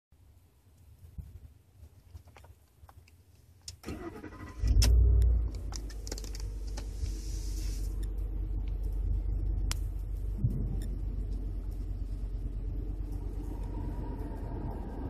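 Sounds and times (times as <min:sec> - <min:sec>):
truck engine fast idle: 0:03.8 - 0:05.5
engine starter cranking: 0:03.8 - 0:06.8.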